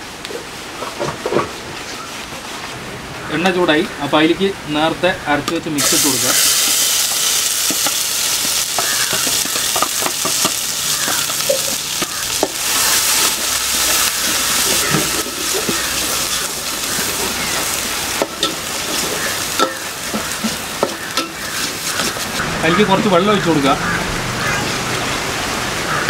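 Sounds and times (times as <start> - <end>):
paste sizzling in oil: 5.8 - 22.8.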